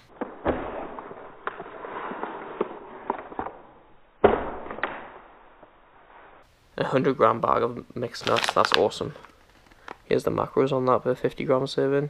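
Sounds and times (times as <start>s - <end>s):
paper and cardboard rustling: 8.1s - 10.0s.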